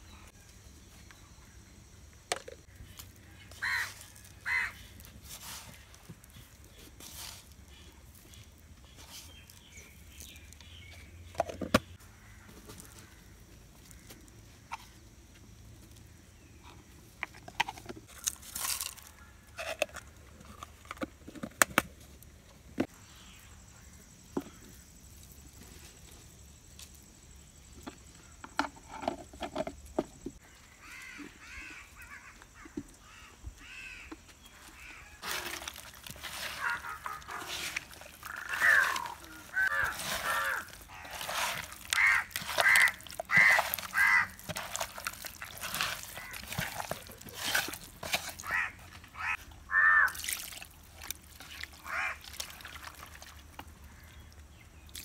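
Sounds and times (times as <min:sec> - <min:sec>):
birds calling: 0:02.6 - 0:15.0, 0:30.3 - 0:50.3, 0:51.4 - 0:55.0
hand mixing fish with spices: 0:02.7 - 0:11.3, 0:35.2 - 0:54.3.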